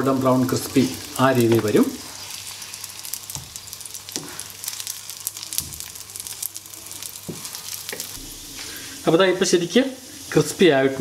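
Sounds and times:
patties sizzling in oil: 0:00.0 - 0:11.0.

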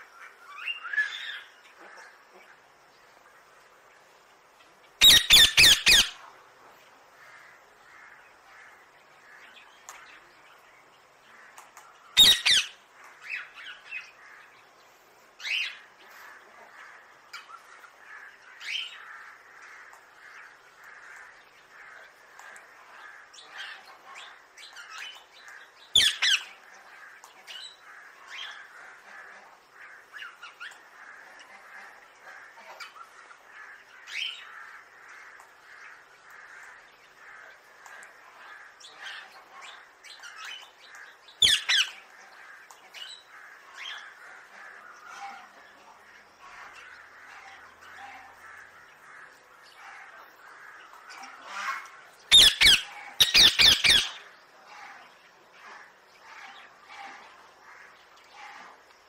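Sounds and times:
parakeets squawking: 0:05.0 - 0:06.2, 0:12.2 - 0:12.8, 0:41.4 - 0:42.0, 0:51.4 - 0:54.2.

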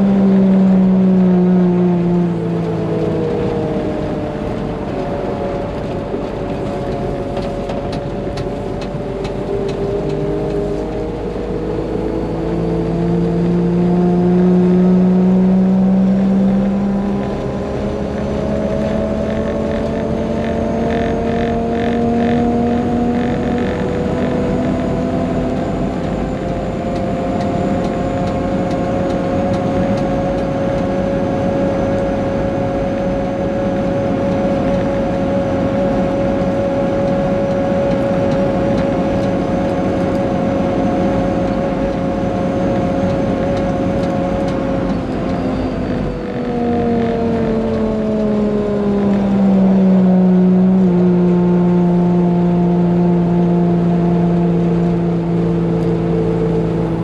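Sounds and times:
diesel engine running: 0:00.0 - 0:57.0
steady whine: 0:00.0 - 0:57.0.

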